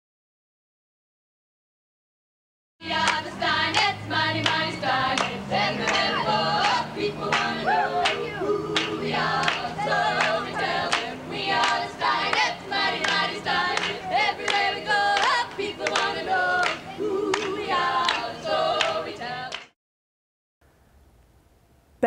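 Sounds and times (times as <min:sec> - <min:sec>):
women singing in harmony: 0:02.8 - 0:19.7
sharp clap on the beat: 0:03.0 - 0:08.2, 0:08.8 - 0:19.7.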